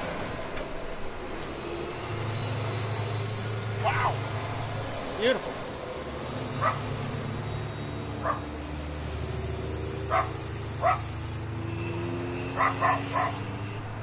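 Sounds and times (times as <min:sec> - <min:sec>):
air compressor humming: 0:01.2 - 0:03.9, 0:05.6 - 0:11.6, 0:12.3 - 0:13.6
airbrush spraying hiss: 0:01.5 - 0:03.7, 0:05.8 - 0:07.4, 0:08.5 - 0:11.5, 0:12.3 - 0:13.5
dog yipping: 0:06.6 - 0:06.9, 0:08.2 - 0:08.5, 0:10.1 - 0:11.1, 0:12.6 - 0:13.4.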